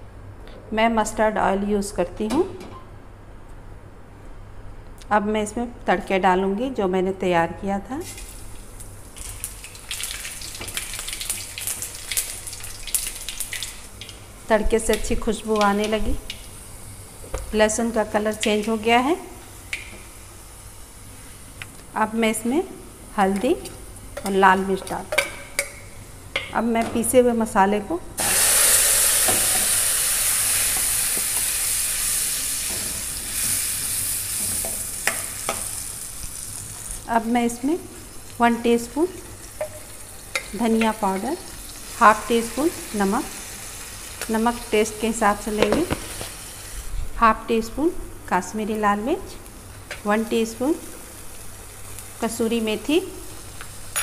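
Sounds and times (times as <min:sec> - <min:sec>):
spices sizzling in hot oil: 0:08.0 - 0:26.4, 0:28.2 - 0:46.9, 0:48.7 - 0:54.0
paste sizzling in hot oil: 0:28.2 - 0:37.0.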